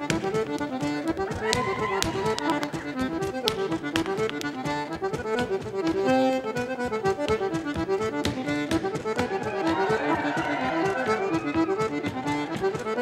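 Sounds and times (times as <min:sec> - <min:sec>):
accordion dance tune: 0:00.0 - 0:13.0
dancer's shoes tapping wooden floor: 0:00.0 - 0:13.0.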